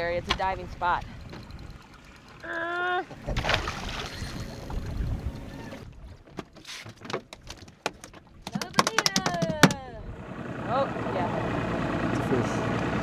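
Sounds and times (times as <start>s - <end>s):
water washing against boat hull: 0.0s - 9.9s
wind: 0.0s - 13.0s.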